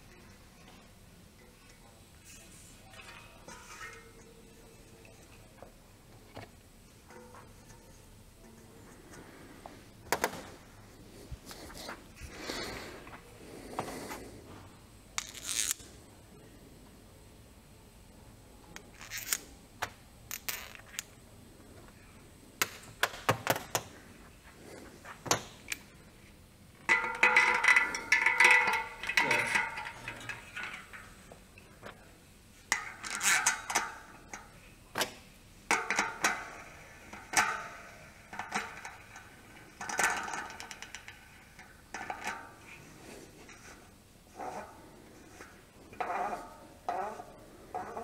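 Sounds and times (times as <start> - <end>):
metallic rattling and scraping: 0.0 - 5.6, 26.8 - 31.8, 35.7 - 48.0.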